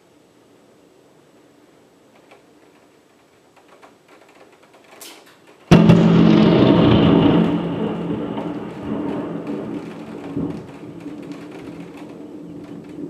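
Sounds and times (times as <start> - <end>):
thunder crack and rumble: 5.7 - 13.0.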